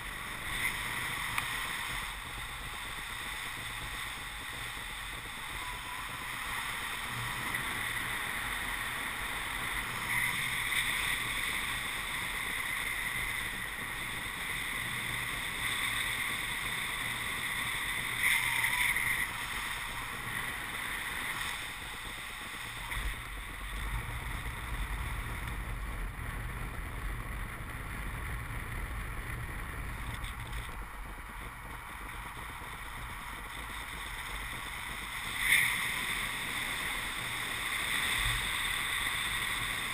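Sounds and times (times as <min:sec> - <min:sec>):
low buffeting rumble: 0:19.4 - 0:35.2.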